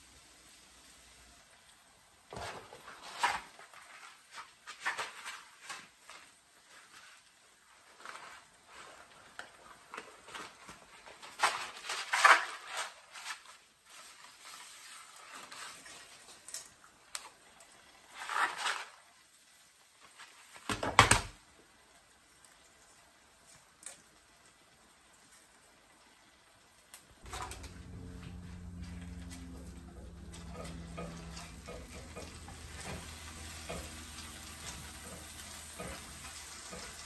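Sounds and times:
kitchen handling rustles and clatters: 0:02.3 - 0:19.3, 0:27.2 - 0:37.0.

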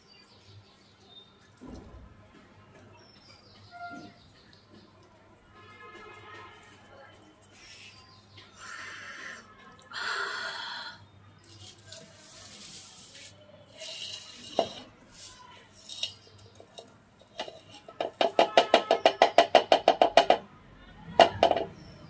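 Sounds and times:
sieve shaking and rustling: 0:11.4 - 0:18.2
rapid metallic taps on sieve: 0:13.8 - 0:20.4.

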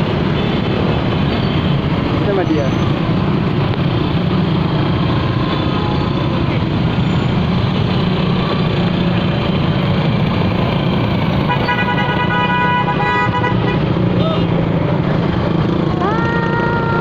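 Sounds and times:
engine and road noise: 0:00.0 - 0:17.0
vehicle horn honking: 0:11.5 - 0:13.8.

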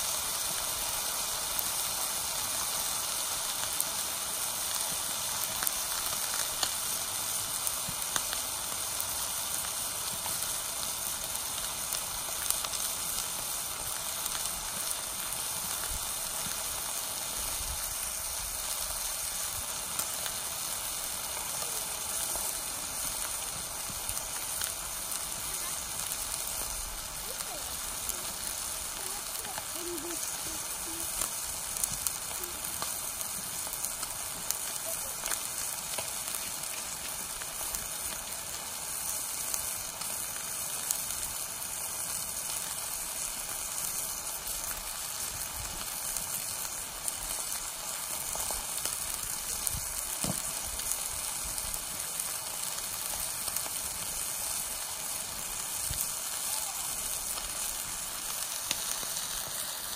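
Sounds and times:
meat sizzling in a skillet: 0:00.0 - 0:59.9
fat popping and crackling: 0:47.1 - 0:51.9.

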